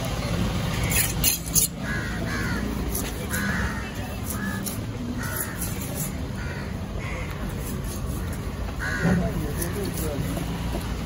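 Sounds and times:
steady background noise: 0.0 - 11.0
crows cawing: 1.8 - 10.0.

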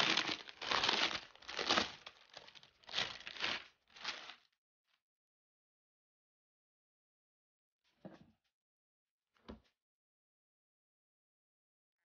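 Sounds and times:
plastic wrapping crinkling: 0.0 - 4.5.

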